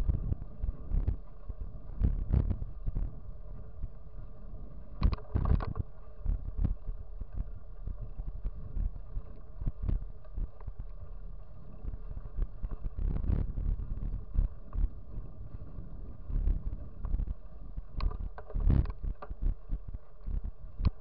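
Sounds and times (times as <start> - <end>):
wind buffeting microphone: 0.0 - 21.0
bike knocks and rattles: 16.6 - 21.0.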